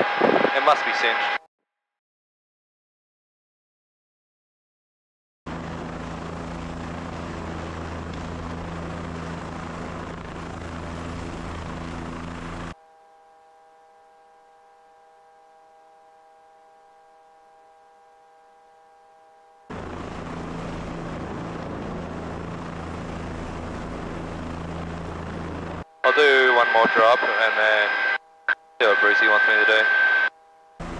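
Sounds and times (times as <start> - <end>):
helicopter engine and rotor: 0.0 - 1.4, 5.5 - 12.8, 19.7 - 28.2, 28.8 - 30.9
steady multi-tone hum: 5.5 - 30.9.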